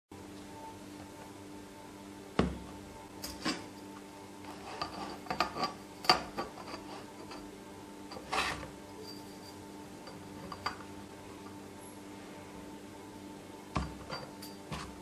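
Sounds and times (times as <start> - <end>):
steady low hum: 0.1 - 15.0
ruler scraping: 8.2 - 8.7.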